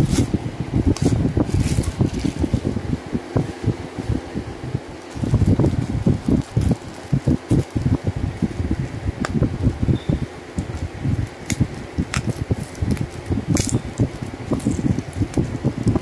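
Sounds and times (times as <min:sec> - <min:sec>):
bubble wrap rustling: 0:00.0 - 0:02.8, 0:03.4 - 0:08.0, 0:10.6 - 0:16.0
bubble wrap crackles: 0:00.9 - 0:02.7, 0:04.9 - 0:07.9, 0:10.6 - 0:16.0.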